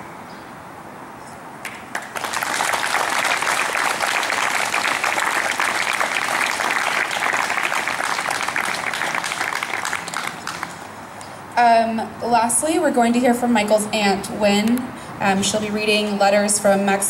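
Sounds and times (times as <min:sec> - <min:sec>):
audience applauding: 0:01.6 - 0:10.9.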